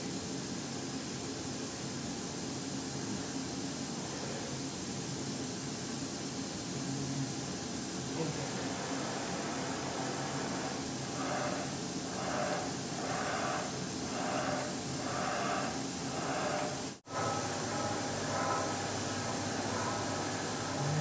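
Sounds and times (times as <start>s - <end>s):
machine mechanical whir: 9.8s - 21.0s.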